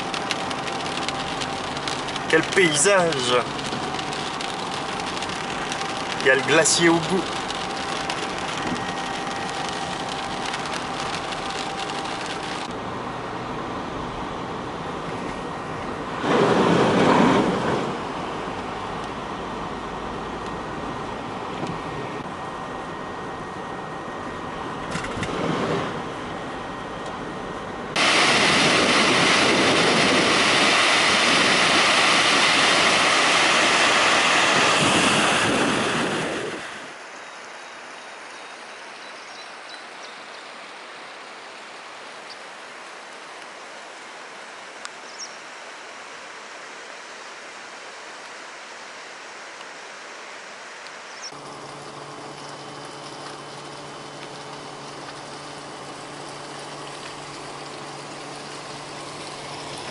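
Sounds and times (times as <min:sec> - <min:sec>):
loud steady rushing noise: 0:00.0 - 0:12.8, 0:25.0 - 0:37.0
car road noise on wet road: 0:00.0 - 0:59.9.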